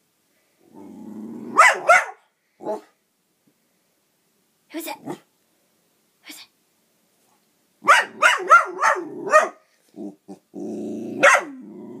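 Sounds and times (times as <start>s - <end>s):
dog growling: 0.6s - 1.6s, 8.9s - 12.0s
dog barking: 1.5s - 2.9s, 7.8s - 9.6s, 11.2s - 11.6s.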